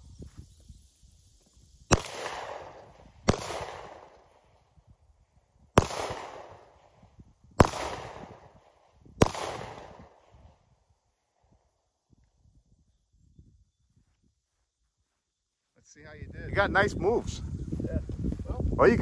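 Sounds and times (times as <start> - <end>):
handgun shots with echo: 1.9 - 4.2, 5.8 - 6.8, 7.6 - 8.6, 9.2 - 10.3.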